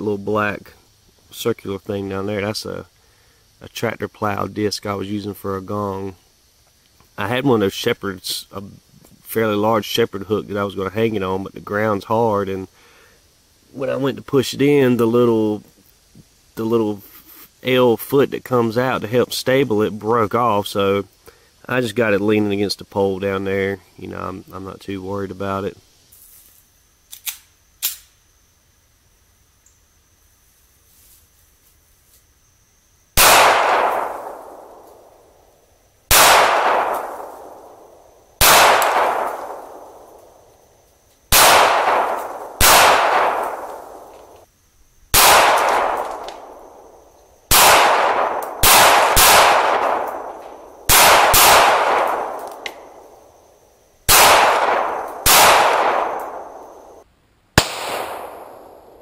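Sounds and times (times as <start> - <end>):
pistol shots echoing: 33.2 - 35.2, 36.1 - 40.1, 41.3 - 44.1, 45.2 - 46.8, 47.5 - 53.1, 54.1 - 57.0, 57.6 - 59.0.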